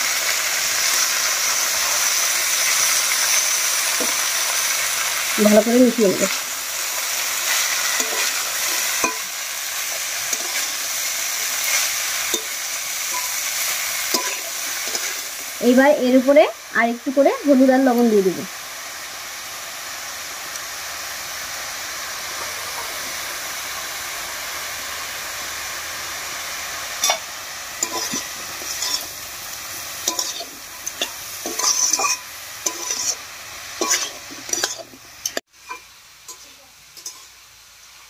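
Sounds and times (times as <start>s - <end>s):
vegetables sizzling in oil: 0.0s - 38.0s
spatula scraping a pan: 0.9s - 5.0s, 7.0s - 15.5s, 27.0s - 29.2s, 30.0s - 37.4s.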